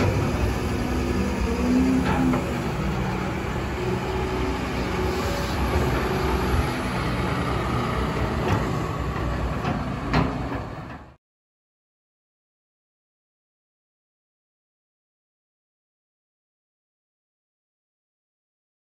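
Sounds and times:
excavator diesel engine running: 0.0s - 11.2s.

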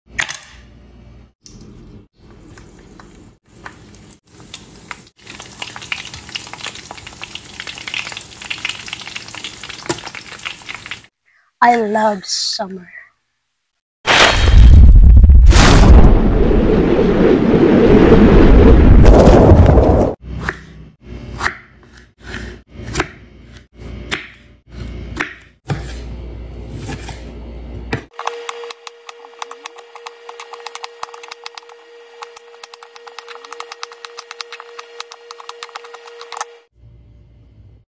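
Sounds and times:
fish crackling in hot oil: 3.5s - 11.1s.

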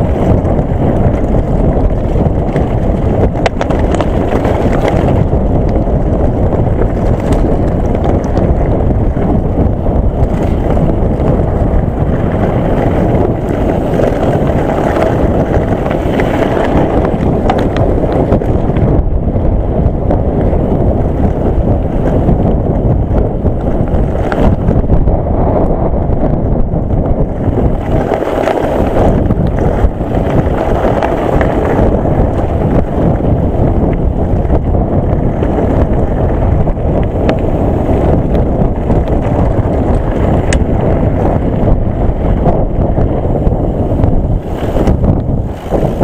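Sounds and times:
bike clicks and rattles: 0.0s - 46.0s
tyres rumbling on stones: 0.0s - 46.0s
wind buffeting microphone: 0.0s - 46.0s.

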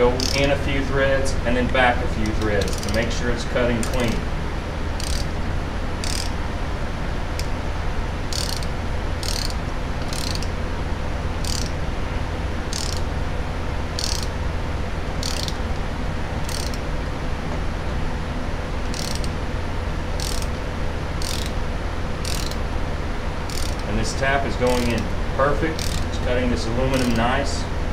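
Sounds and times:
steady low hum: 0.0s - 27.9s
ratchet wrench clicking: 0.1s - 0.6s, 2.2s - 3.2s, 3.8s - 4.2s, 5.0s - 5.3s, 6.0s - 6.4s, 7.4s - 7.6s, 8.3s - 10.6s, 11.4s - 11.8s, 12.7s - 13.1s, 14.0s - 14.4s, 15.2s - 15.6s, 16.4s - 16.8s, 18.8s - 19.4s, 20.2s - 20.6s, 21.2s - 21.6s, 22.2s - 22.6s, 23.5s - 23.9s, 24.7s - 25.1s, 25.7s - 26.2s, 26.9s - 27.2s.

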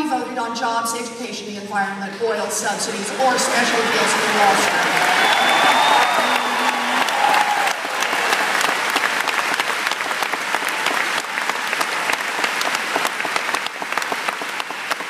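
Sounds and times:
crowd applauding and cheering: 3.1s - 15.0s
crowd shouts: 3.4s - 8.9s.

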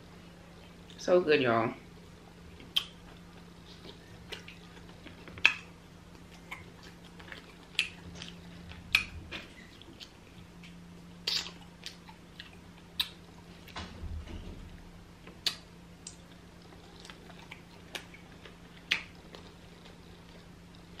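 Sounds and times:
faint steady hum: 0.0s - 21.0s
wet chewing smacks and clicks: 2.6s - 13.4s, 15.3s - 21.0s.

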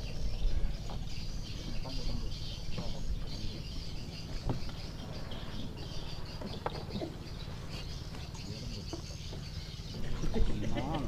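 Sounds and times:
birds and insects chirping: 0.0s - 11.0s.

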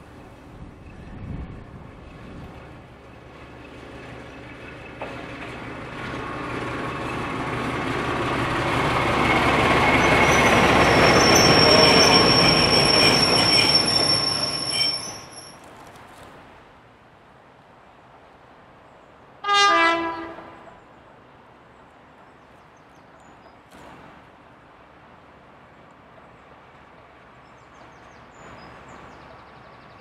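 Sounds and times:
train wheel noise: 0.0s - 15.7s
high steady squeal: 8.9s - 15.6s.

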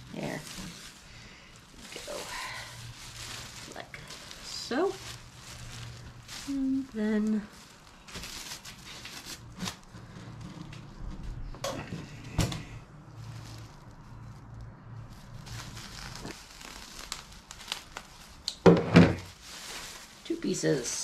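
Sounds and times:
plastic sheeting crinkling: 0.0s - 21.0s.

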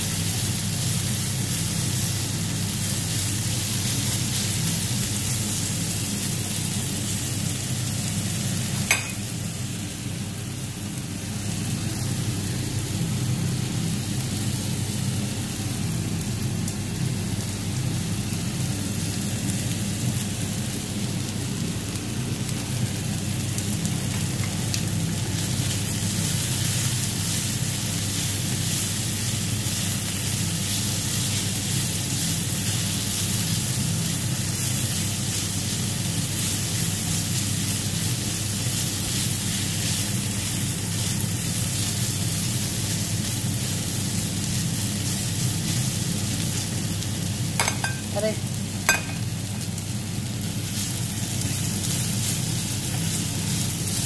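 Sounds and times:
meat sizzling in a pan: 0.0s - 54.0s.

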